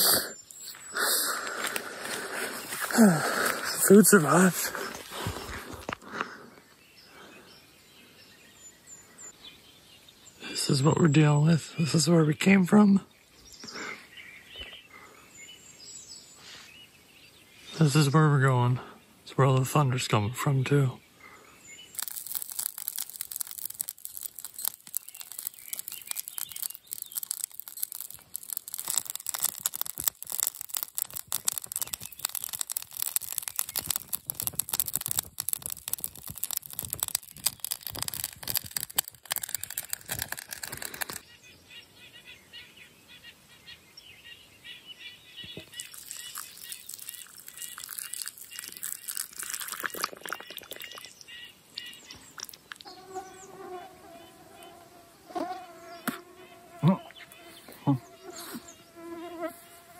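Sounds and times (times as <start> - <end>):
wood fire crackling: 0.0 - 5.9, 21.9 - 41.2, 45.7 - 51.0
bird chirps: 6.6 - 18.1, 20.4 - 35.5, 41.1 - 54.8
hot water poured into mug: 45.7 - 51.2.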